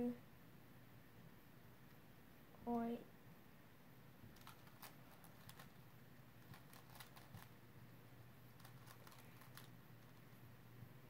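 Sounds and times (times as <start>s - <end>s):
puzzle cube layers clicking: 8.6s - 10.2s.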